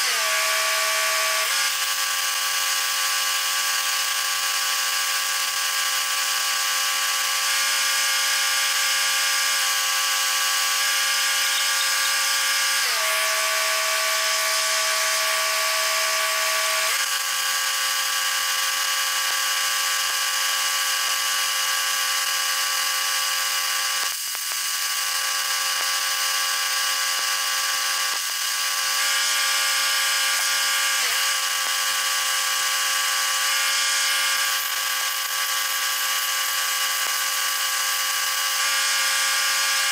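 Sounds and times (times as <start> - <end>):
welding arc crackling hiss: 0.0 - 39.9
steady pitched hum: 11.2 - 16.4.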